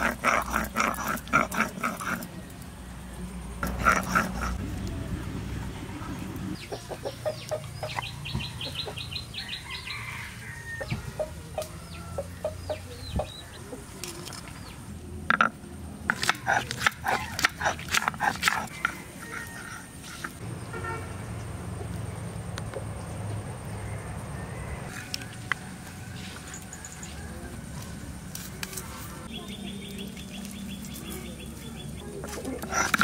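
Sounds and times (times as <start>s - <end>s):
chickens clucking: 6.5s - 10.2s, 10.8s - 14.8s, 29.2s - 33.0s.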